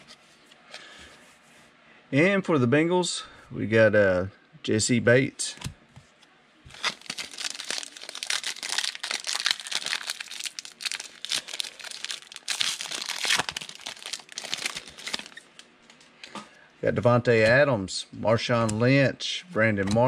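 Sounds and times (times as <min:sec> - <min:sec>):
plastic wrapper crinkling and tearing: 0:06.7 - 0:15.7.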